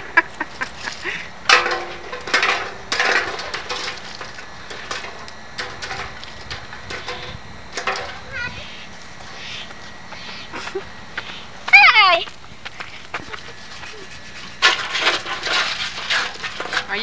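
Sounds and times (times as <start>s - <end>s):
knocks and clatter: 1.5s - 8.3s.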